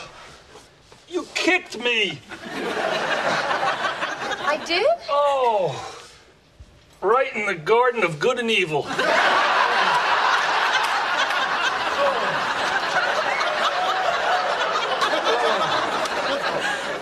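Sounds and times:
studio audience laughing: 2.3 - 4.9, 8.9 - 17.0.

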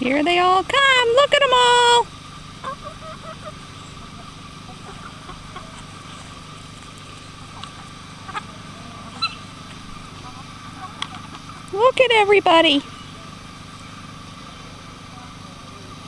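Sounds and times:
steady low hum: 0.0 - 16.0
chickens clucking: 1.2 - 12.1
short sharp chicken calls: 2.6 - 6.5, 7.1 - 9.6.

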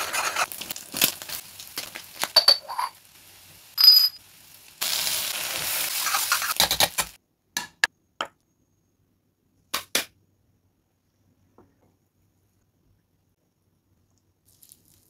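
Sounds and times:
rice sizzling in a wok: 0.0 - 7.2, 14.5 - 15.0
glass bowl and plates clinking: 2.3 - 3.0.

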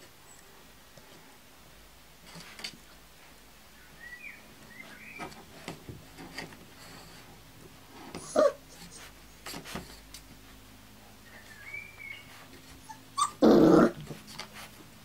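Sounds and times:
puppies whimpering: 8.2 - 9.0, 12.8 - 14.0
puppy yelping: 8.2 - 9.0, 12.8 - 14.0.

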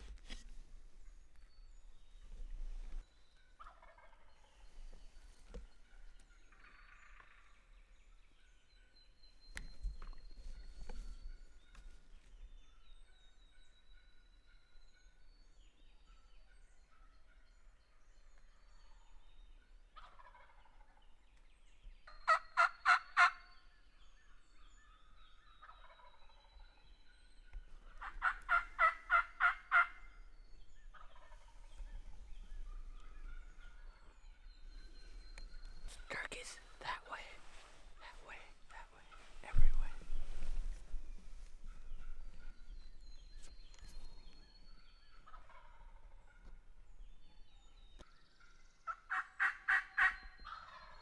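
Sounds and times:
faint songbird calls: 0.0 - 51.0
turkey calls: 2.9 - 7.7, 19.9 - 21.4, 22.0 - 23.7, 24.3 - 51.0.

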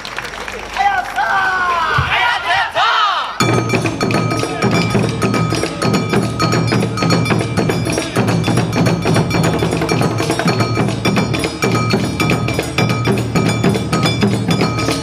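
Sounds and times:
drums beating: 1.9 - 2.8, 3.4 - 15.0
hand gong clanging: 3.4 - 15.0.

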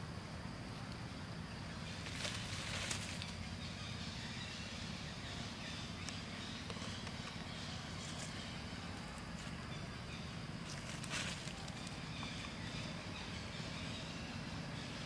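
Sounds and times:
low background hum: 0.0 - 15.0
rustling in dry leaves: 1.8 - 3.8, 10.6 - 12.5.

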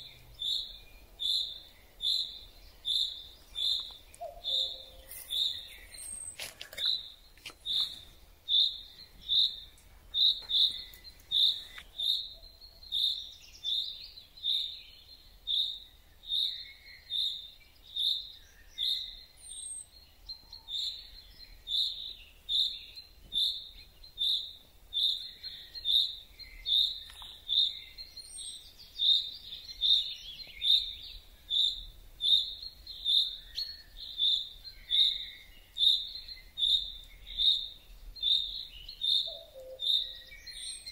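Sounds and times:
faint calls of other birds: 0.0 - 40.9.

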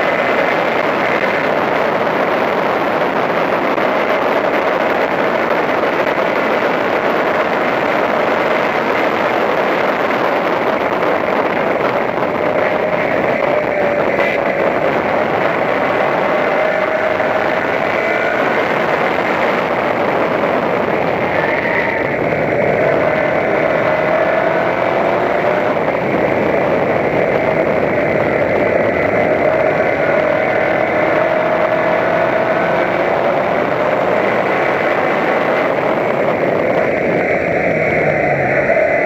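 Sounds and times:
race car engine running hard: 0.0 - 39.0
road noise: 0.0 - 39.0
wind noise: 0.0 - 39.0.

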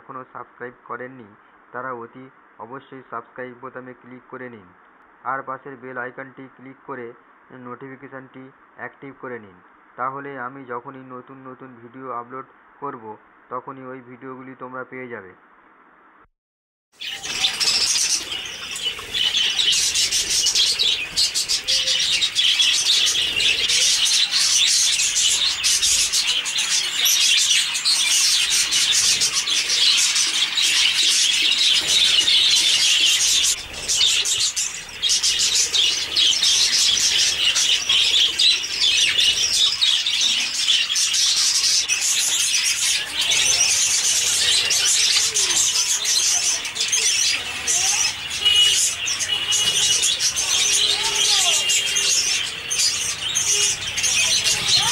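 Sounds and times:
budgerigars chattering and chirping: 17.0 - 54.9.

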